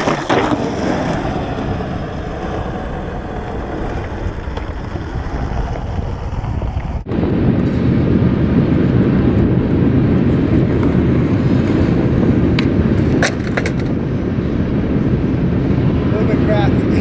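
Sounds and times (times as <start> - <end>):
skateboard clacks: 0.0 - 1.3, 10.6 - 14.0
skateboard rolling on concrete: 0.0 - 17.0.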